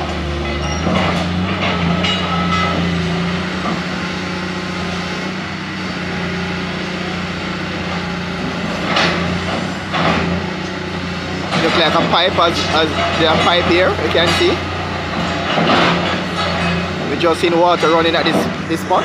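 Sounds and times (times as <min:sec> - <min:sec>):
excavator diesel engine running: 0:00.0 - 0:19.0
metallic knocks and clatters: 0:00.4 - 0:03.0, 0:11.5 - 0:17.0.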